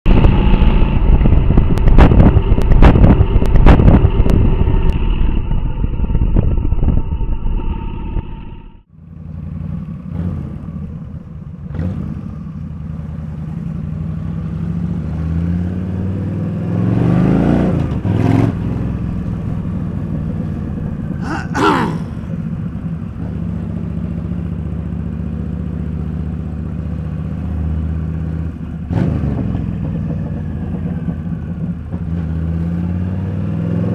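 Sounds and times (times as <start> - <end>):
wind noise: 0.1 - 8.4
motorcycle engine running: 8.9 - 15.2.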